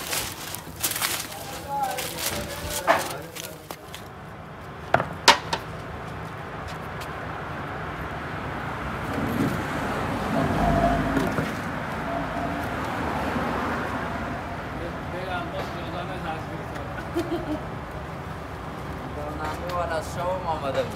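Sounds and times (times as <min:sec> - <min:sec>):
motor vehicle passing: 0:05.7 - 0:15.3.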